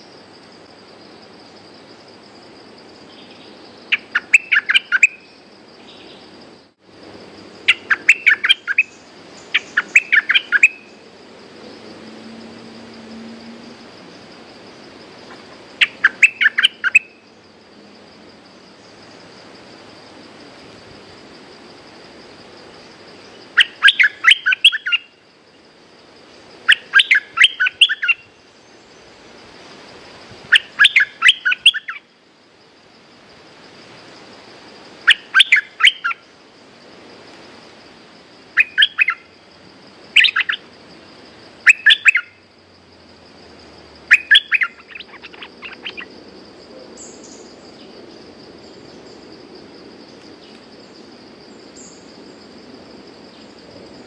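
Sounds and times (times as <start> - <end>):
bird singing chirpy notes: 3.1 - 6.2, 7.7 - 11.0, 15.8 - 17.2, 23.6 - 25.1, 26.7 - 28.3, 38.6 - 39.2, 40.2 - 40.6, 44.1 - 46.1.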